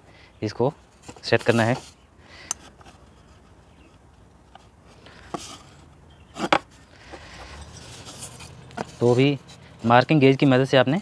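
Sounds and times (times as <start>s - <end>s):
brief rub: 6.4s - 9.7s.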